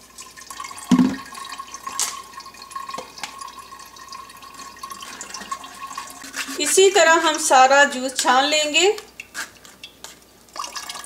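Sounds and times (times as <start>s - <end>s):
juice pouring through strainer: 0.0s - 7.5s, 9.0s - 11.0s
knock: 0.9s - 1.2s.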